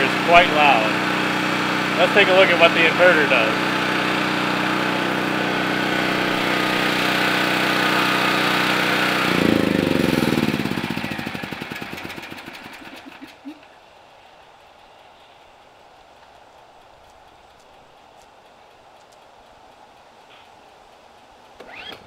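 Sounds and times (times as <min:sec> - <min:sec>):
generator spinning down: 0:00.0 - 0:13.7, 0:21.4 - 0:22.0
generator engine running: 0:00.0 - 0:22.0.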